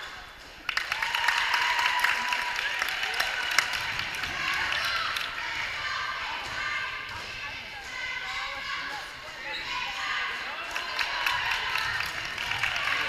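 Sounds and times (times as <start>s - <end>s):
crowd cheering: 0.0s - 7.0s, 10.0s - 13.0s.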